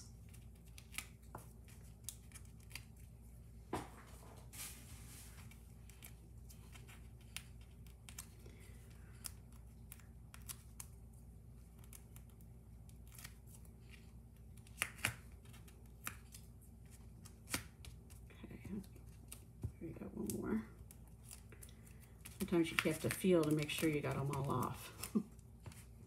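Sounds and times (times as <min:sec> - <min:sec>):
paper backing peeling clicks: 0:14.6 - 0:18.2.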